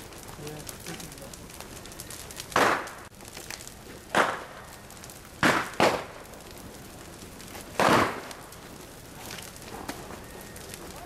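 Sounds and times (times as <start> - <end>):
bonfire burning: 0.0 - 11.0
loud sharp bangs: 2.5 - 3.0, 5.4 - 6.2, 7.8 - 8.3.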